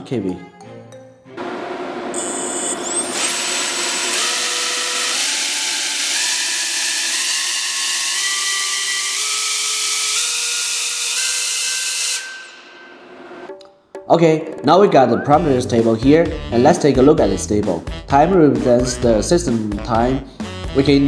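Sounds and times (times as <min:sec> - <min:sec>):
motor whine stepping up in pitch: 0:01.4 - 0:07.8.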